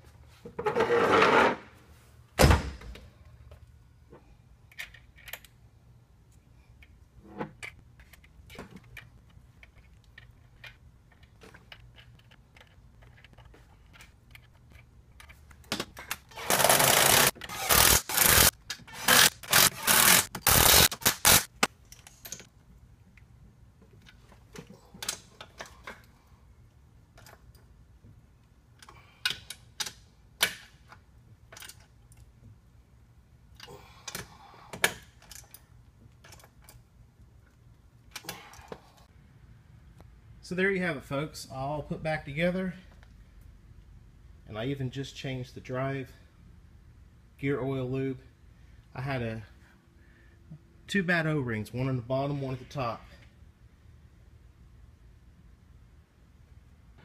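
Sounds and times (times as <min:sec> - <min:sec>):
tools clicking and knocking: 0:04.7 - 0:05.6, 0:06.8 - 0:22.5, 0:27.1 - 0:27.7, 0:28.8 - 0:32.3, 0:33.5 - 0:36.8
cordless drill running: 0:16.4 - 0:21.4.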